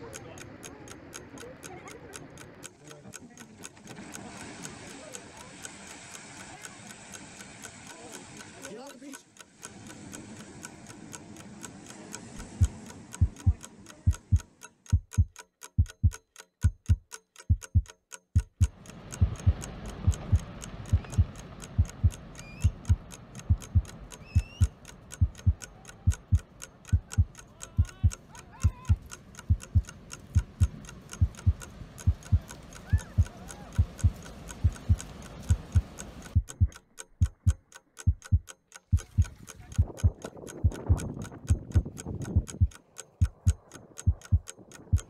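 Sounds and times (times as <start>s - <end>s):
clock ticking fast: 0.0s - 45.0s
heartbeat thumps: 12.4s - 32.5s, 33.1s - 45.0s
soft background hiss: 19.2s - 39.5s.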